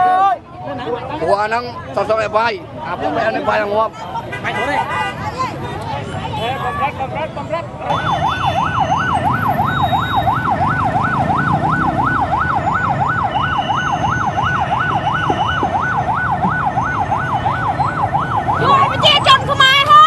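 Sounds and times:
electronic siren warbling: 7.9 - 19.0.

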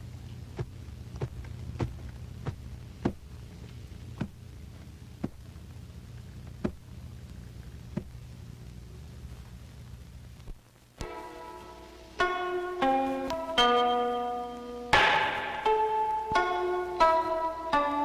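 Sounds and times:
steady low hum: 0.0 - 18.0
sharp knocks: 14.9 - 15.9.

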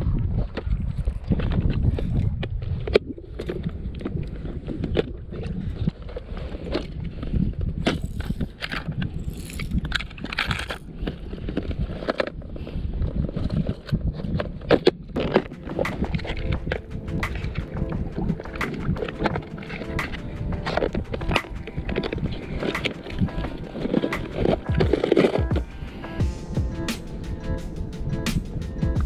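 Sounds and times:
wind rumble on microphone: 0.0 - 29.0
lures rattling in a box: 7.9 - 12.4.

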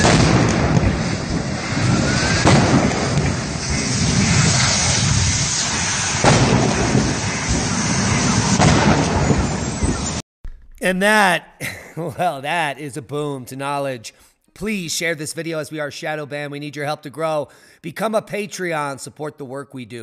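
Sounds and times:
vehicle fire rushing roar: 0.0 - 10.2
sharp blasts: 0.0 - 11.0.

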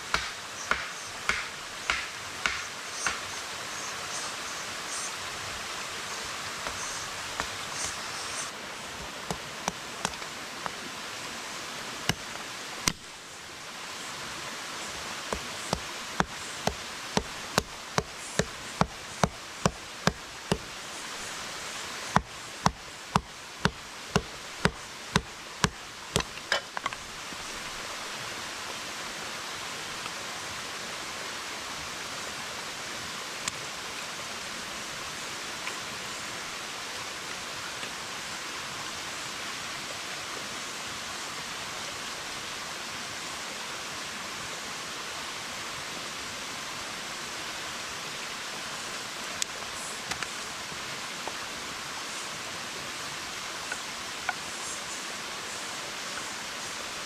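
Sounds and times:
stream rushing: 0.0 - 57.0
machete chopping wood: 0.1 - 3.2, 7.4 - 8.0, 15.3 - 20.7, 22.1 - 26.6.

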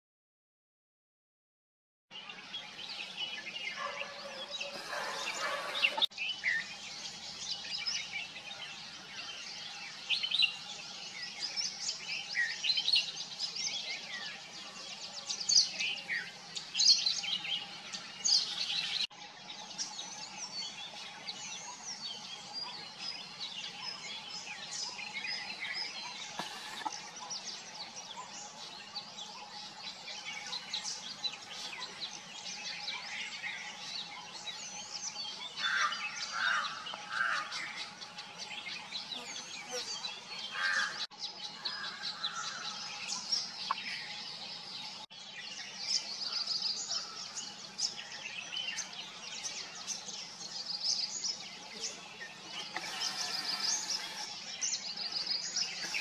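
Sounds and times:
small birds chirping and trilling: 2.1 - 56.0.

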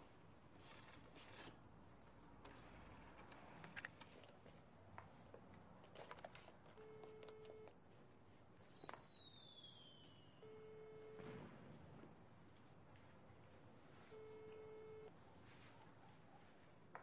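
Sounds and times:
telephone ringback tone: 6.8 - 7.7, 10.4 - 11.3, 14.1 - 15.1.

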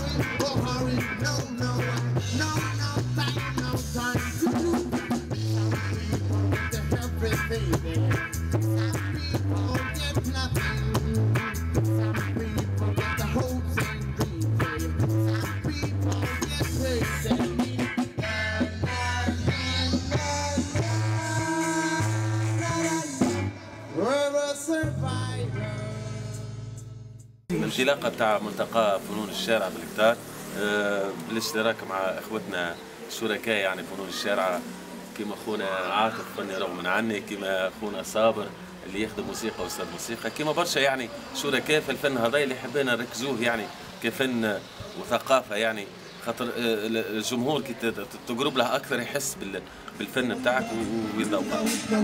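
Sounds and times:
rock band playing: 0.0 - 24.0
drums: 0.0 - 24.2, 24.8 - 27.2
person singing: 0.0 - 26.5
bass guitar: 0.0 - 27.6.

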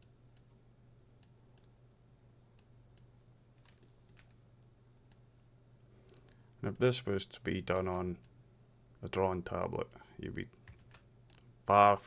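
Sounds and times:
computer mouse clicks: 0.0 - 0.6, 1.2 - 1.8, 10.6 - 11.5
low steady hum: 0.0 - 12.0.

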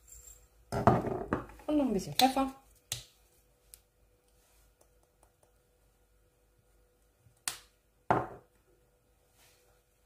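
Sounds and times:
jar knocking on countertop: 8.1 - 8.4.

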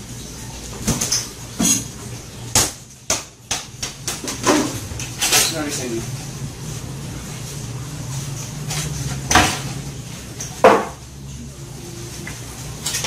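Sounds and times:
kitchenware clattering: 0.8 - 6.0, 8.6 - 9.8, 10.4 - 11.0.

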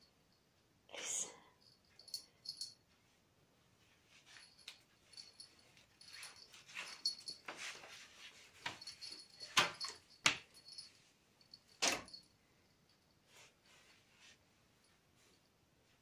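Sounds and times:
cat scuffling on hard floor: 6.1 - 10.4.

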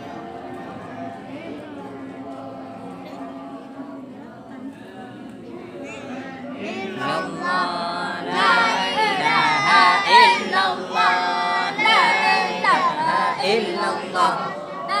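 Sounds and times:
group of voices chanting: 6.6 - 15.0.

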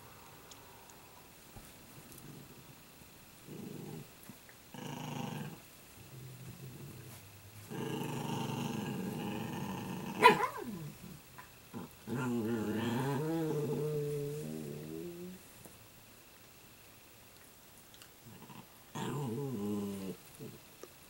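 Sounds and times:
puppies growling: 2.1 - 15.4, 18.2 - 20.7.

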